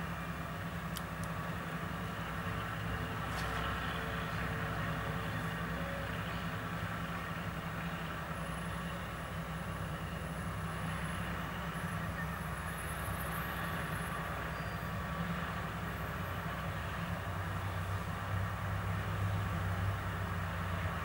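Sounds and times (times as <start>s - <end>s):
road traffic passing: 0.0s - 21.0s
tractor engine idling: 0.0s - 21.0s.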